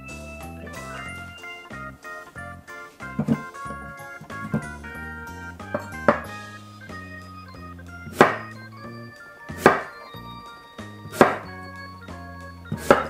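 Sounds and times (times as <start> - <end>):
background music: 0.0 - 13.0
knife chopping apple: 8.1 - 8.5, 9.6 - 9.9, 11.1 - 11.5, 12.8 - 13.0.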